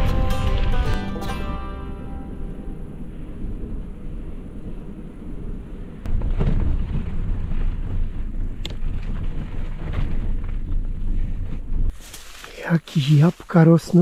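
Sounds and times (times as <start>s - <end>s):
wind buffeting microphone: 0.0s - 12.0s
bicycle tyre rumble: 0.0s - 14.0s
bike knocks and rattles: 6.1s - 11.9s.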